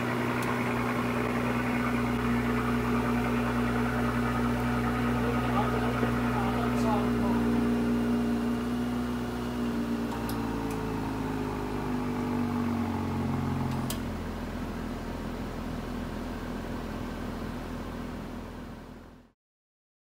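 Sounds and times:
car engine idling: 0.0 - 19.3
faint engine ticks: 0.2 - 3.6.

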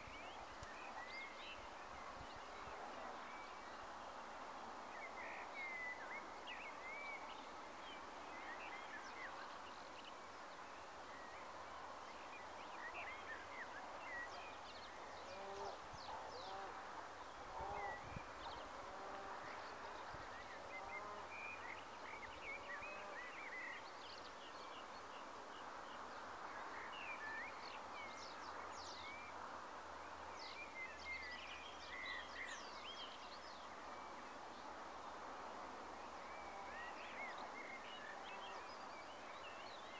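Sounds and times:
background hiss: 0.0 - 39.9.

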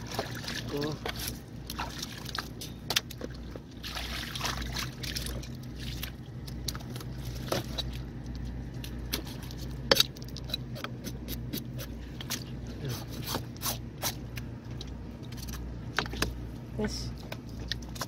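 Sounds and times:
water running off fish: 0.0 - 11.5
steady low rumble: 0.0 - 18.0.

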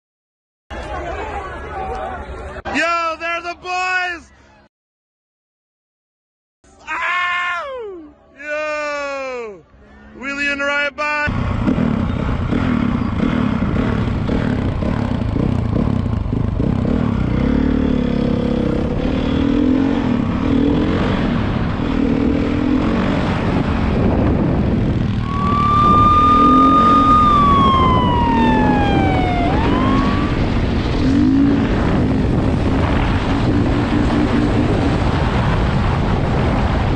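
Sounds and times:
dirt bike engine revving: 11.3 - 35.2
wind noise on helmet: 21.0 - 36.9
siren: 25.2 - 30.7.

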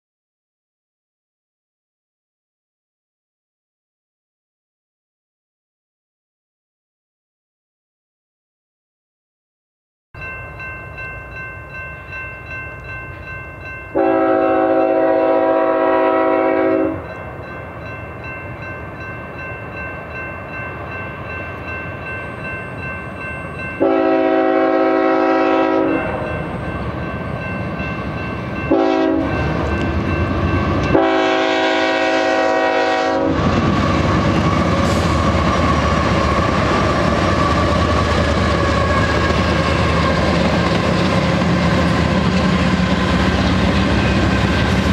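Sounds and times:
train wheels rumbling on rail: 12.8 - 44.9
locomotive air horn: 14.0 - 17.1, 23.8 - 26.4, 28.7 - 29.6, 30.9 - 36.2.

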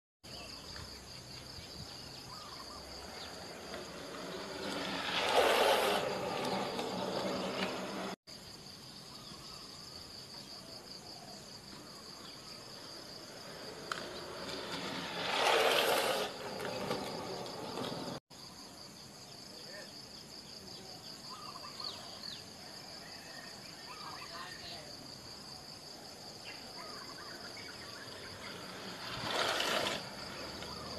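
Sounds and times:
skate wheels rolling on asphalt: 0.3 - 8.2, 11.6 - 18.2, 25.6 - 30.9
insects chirring: 0.3 - 30.9.

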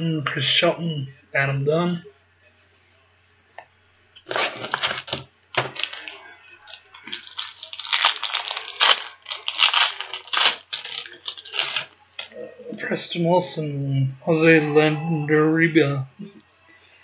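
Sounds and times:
card pack wrapper tearing and crinkling: 4.3 - 12.3.

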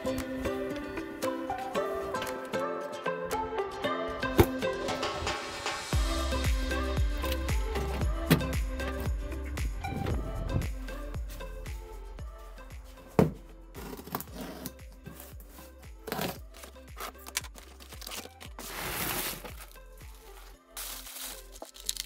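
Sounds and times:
background music: 0.0 - 22.0
cardboard tearing: 16.1 - 19.8, 20.8 - 22.0
paper crinkling: 16.1 - 22.0.

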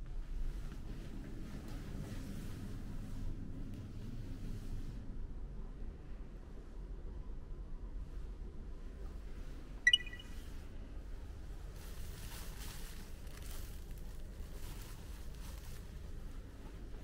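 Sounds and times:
low steady hum: 8.8 - 11.6
short electronic beep: 9.9 - 10.4.

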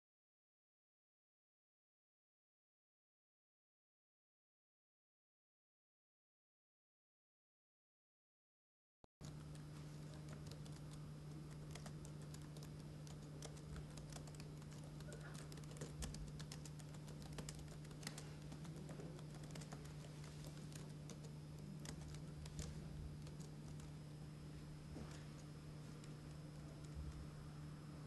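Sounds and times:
laptop keyboard typing: 9.2 - 24.0, 25.0 - 27.4
steady low hum: 9.2 - 28.0.

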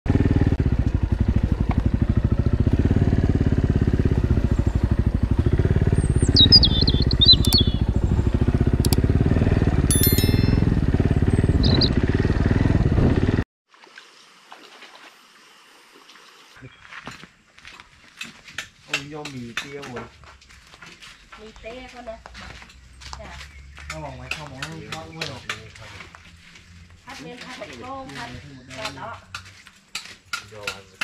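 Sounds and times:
motorcycle engine running: 0.1 - 13.4
sharp clicks: 6.4 - 7.8
short electronic chimes: 9.9 - 10.9.

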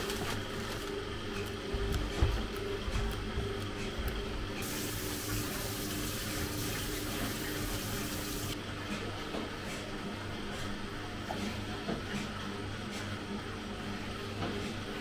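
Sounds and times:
water running from tap into sink: 4.6 - 8.6.

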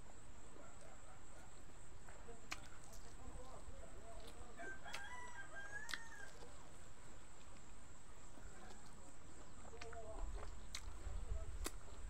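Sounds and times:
rooster crowing: 4.6 - 6.5.

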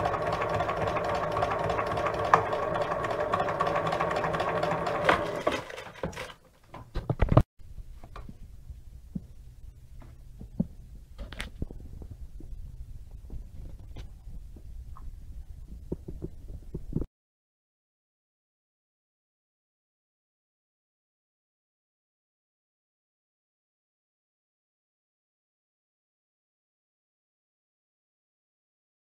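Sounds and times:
sewing machine running: 0.0 - 6.4
faint low hum: 7.6 - 17.0.

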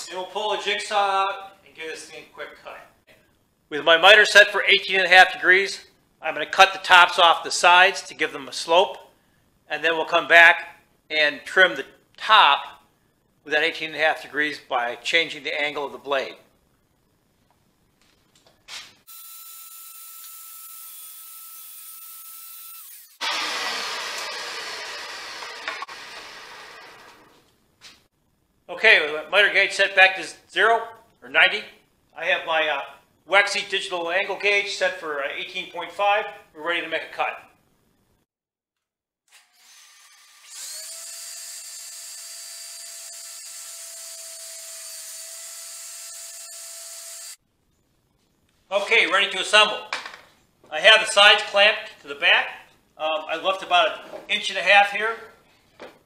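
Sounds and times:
table saw cutting: 19.1 - 27.4, 39.3 - 47.4
table saw whine: 19.1 - 27.4, 39.3 - 47.4.

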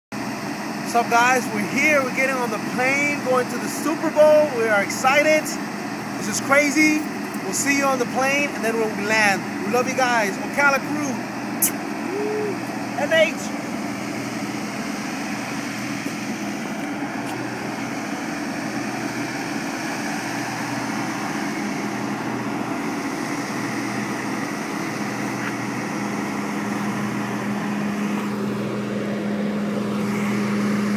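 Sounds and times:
machinery humming: 0.2 - 30.9.

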